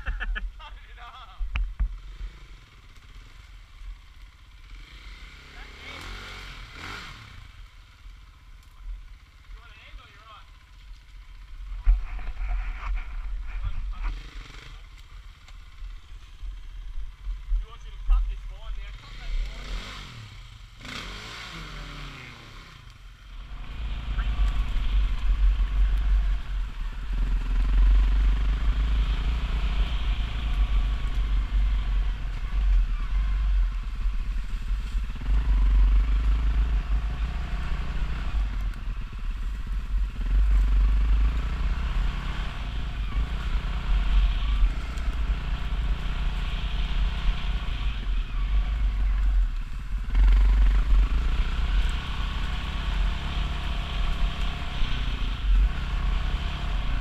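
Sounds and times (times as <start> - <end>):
dirt bike engine revving: 4.5 - 7.7, 11.5 - 14.9, 16.7 - 57.0.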